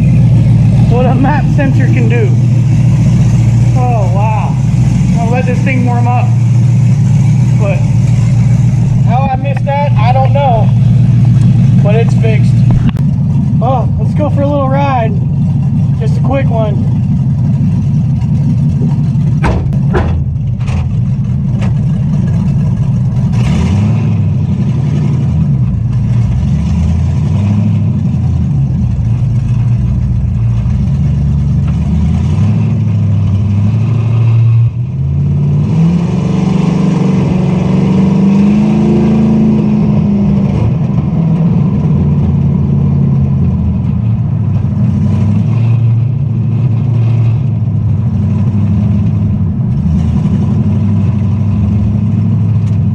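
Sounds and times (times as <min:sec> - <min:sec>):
truck engine accelerating: 0:00.0 - 0:52.9.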